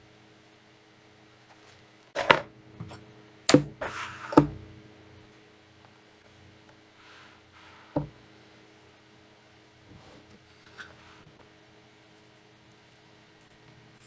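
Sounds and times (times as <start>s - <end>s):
short scrape: 3.8s - 4.4s.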